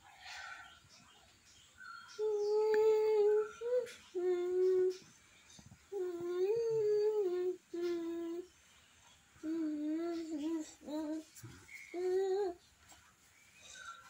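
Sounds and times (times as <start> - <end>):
child humming: 2.2 - 5.0, 5.9 - 8.5, 9.4 - 12.6.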